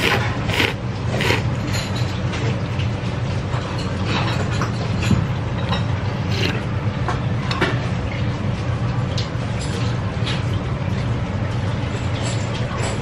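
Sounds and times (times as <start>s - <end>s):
slurping noodles and soup: 0.0s - 1.6s, 6.1s - 6.7s
steady low hum: 0.0s - 9.6s.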